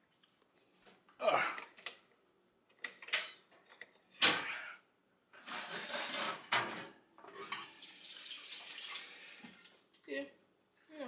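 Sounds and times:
metal pan clattering and scraping: 0:05.4 - 0:07.8.

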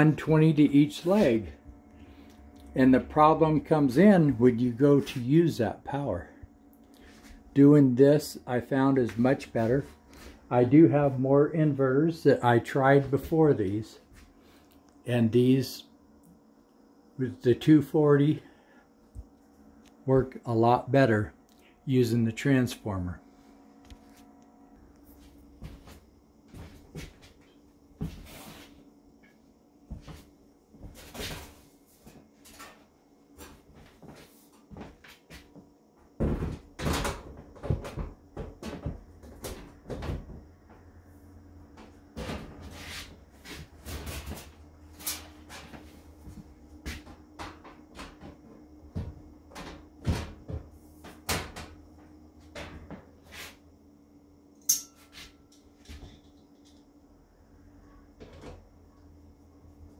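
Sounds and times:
faint steady hum: 0:00.0 - 0:59.9.

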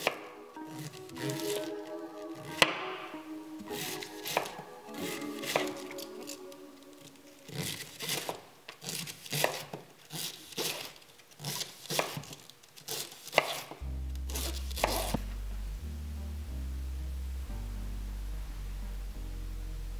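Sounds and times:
knife slicing cabbage on wooden board: 0:07.7 - 0:13.7
background music with bass: 0:13.8 - 0:19.9.

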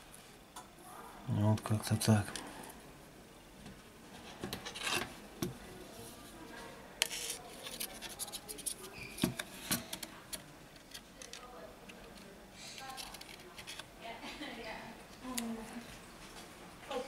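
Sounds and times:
rubbing and scraping of plastic: 0:07.0 - 0:10.1.

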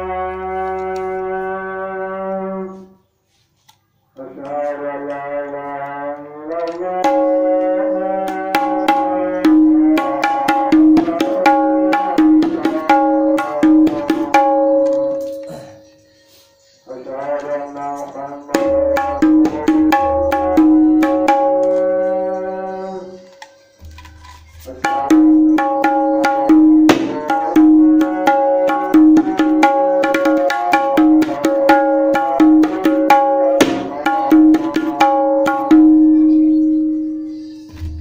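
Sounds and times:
hand drum strokes: 0:07.0 - 0:15.5, 0:23.2 - 0:36.2.

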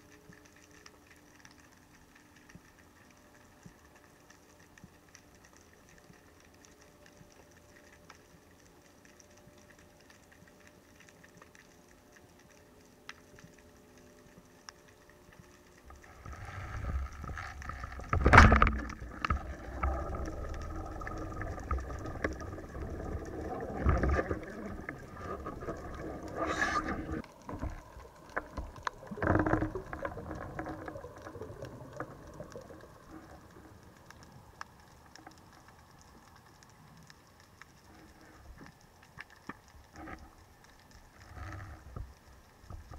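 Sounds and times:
faint underwater crackling: 0:00.0 - 0:42.9
rushing water: 0:15.9 - 0:35.3.

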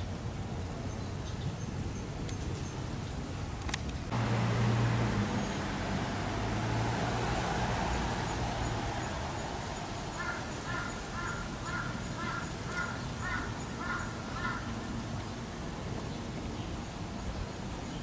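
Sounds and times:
crow cawing: 0:10.1 - 0:14.7.

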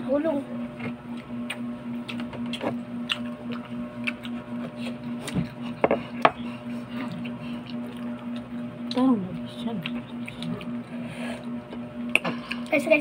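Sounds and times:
steady low hum: 0:00.0 - 0:13.0
clicks and knocks of eating: 0:00.8 - 0:06.4.

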